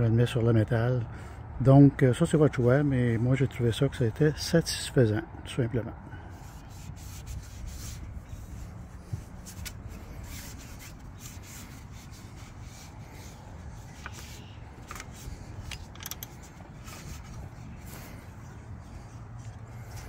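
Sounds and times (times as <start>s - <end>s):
low steady rumble: 0.0s - 20.0s
cloth rag wiping bicycle frame: 6.2s - 20.0s.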